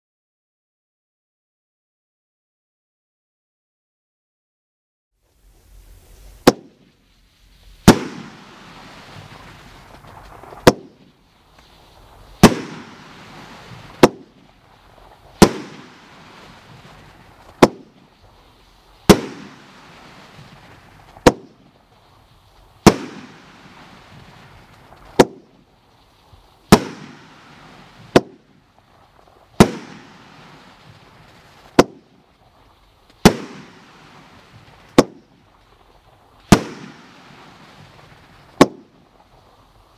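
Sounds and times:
firework cake bangs: 6.4 - 7.0, 7.8 - 18.4, 19.0 - 21.8, 22.8 - 25.7, 26.6 - 32.4, 33.1 - 35.5, 36.4 - 39.2.

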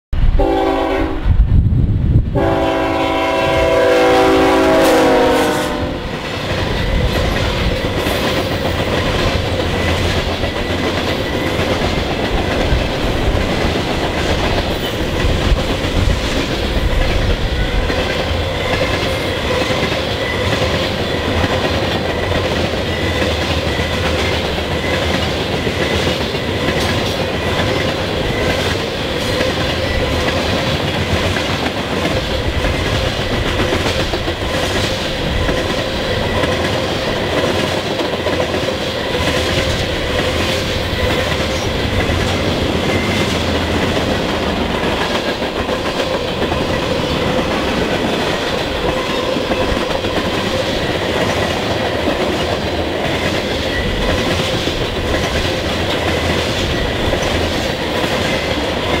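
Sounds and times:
locomotive air horn: 0.4 - 1.3, 2.4 - 6.1
train wheels clacking on rail joints: 2.5 - 59.0.

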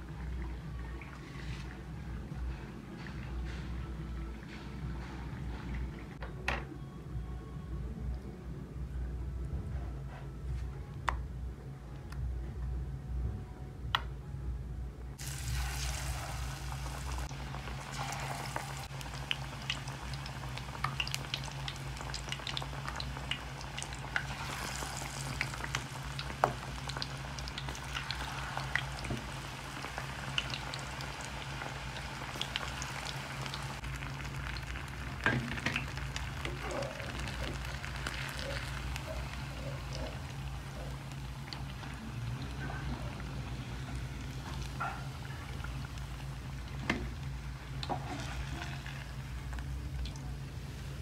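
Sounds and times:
low steady hum: 0.0 - 51.0
food deep-frying in hot oil: 15.2 - 51.0.

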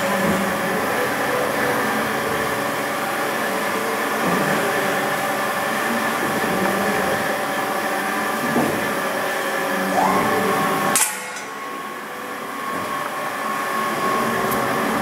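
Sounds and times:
rising machine whine: 9.8 - 12.0.

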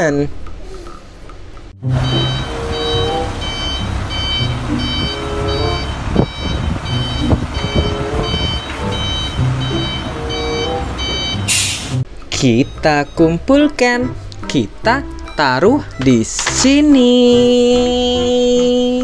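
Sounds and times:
truck engine running: 1.8 - 12.0
reversing alarm beeping: 1.9 - 12.0.

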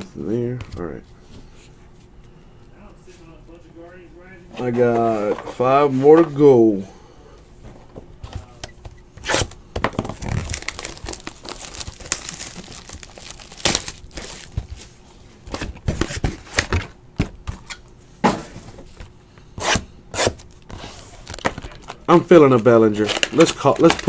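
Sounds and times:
plastic shrink wrap crinkling: 10.0 - 15.0, 21.2 - 24.0.

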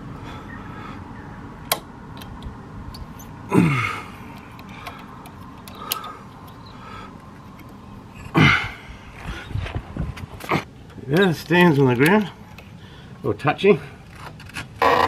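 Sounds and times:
sharp metallic clicks: 1.6 - 3.3, 4.3 - 6.7, 10.8 - 12.7.

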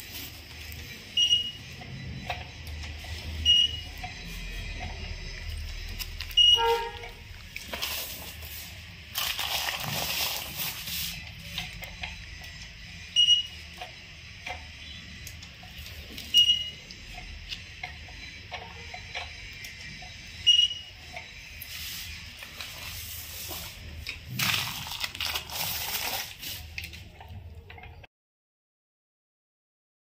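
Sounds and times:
printer electronic beeps: 0.0 - 28.1
roller scraping plastic sack: 7.6 - 11.2, 21.7 - 26.8.

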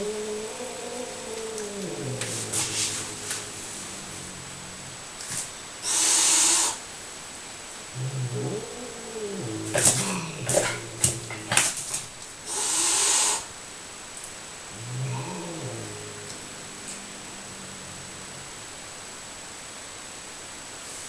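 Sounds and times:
cat growling: 0.0 - 6.8, 7.9 - 13.5, 14.6 - 19.3
cat hissing: 0.0 - 6.9, 8.0 - 13.5, 14.7 - 18.9
cat spitting: 1.3 - 6.2, 8.4 - 12.1.

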